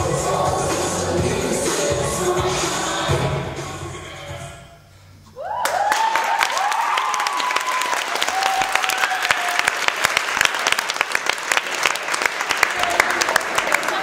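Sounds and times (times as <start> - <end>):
people cheering and whooping: 5.3 - 10.0, 12.7 - 14.0
audience clapping: 5.6 - 14.0.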